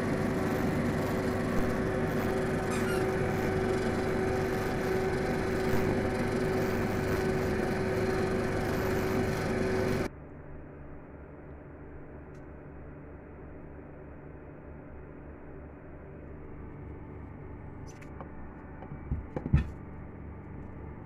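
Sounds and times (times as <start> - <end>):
kitchen appliance humming: 0.0 - 10.1.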